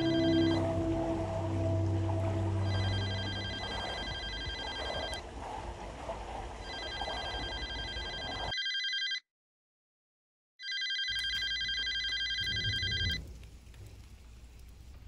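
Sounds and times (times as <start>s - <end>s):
low drone: 0.0s - 5.2s
telephone ringing: 2.6s - 5.2s, 6.6s - 9.2s, 10.6s - 13.2s.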